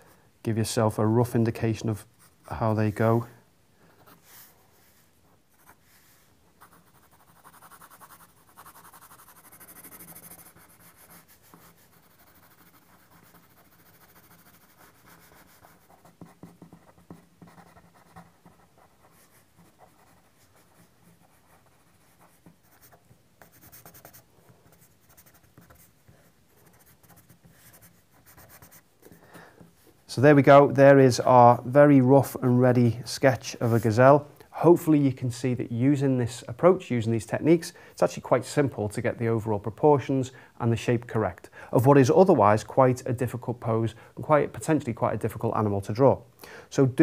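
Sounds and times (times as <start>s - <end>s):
pencil scratching on paper: 4.0s - 28.9s.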